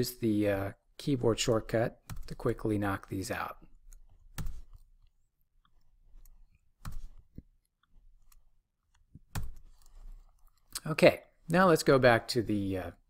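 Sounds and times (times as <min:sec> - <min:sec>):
keyboard key presses: 0:03.9 - 0:04.9.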